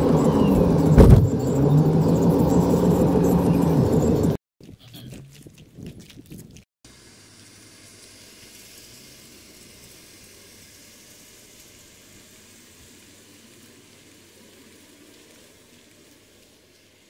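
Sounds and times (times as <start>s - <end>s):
steady high-pitched hiss: 6.9s - 17.0s.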